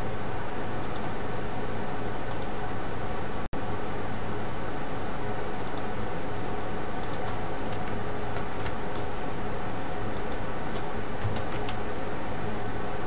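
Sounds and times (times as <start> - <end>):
mouse and keyboard clicks: 0.8 - 1.1, 7.0 - 9.1, 10.2 - 11.8.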